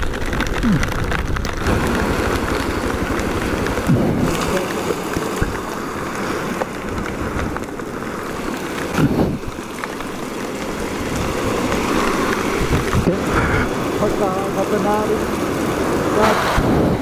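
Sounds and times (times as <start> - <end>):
wind noise on microphone: 0.0 - 4.6, 9.0 - 9.6, 10.9 - 13.8, 16.0 - 17.0
heavy rain pouring: 0.0 - 17.0.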